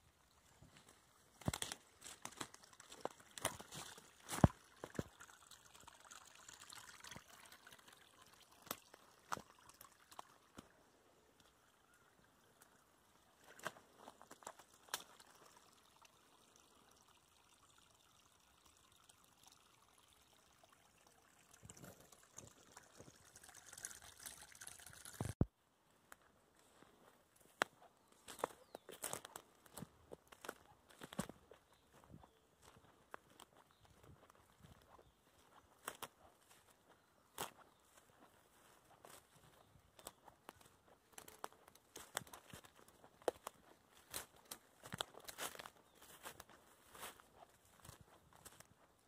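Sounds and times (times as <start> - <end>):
brook trickling: 0.0 - 25.5, 26.6 - 49.0
footsteps on twigs and leaves: 0.5 - 5.1, 13.4 - 15.3, 25.9 - 49.0.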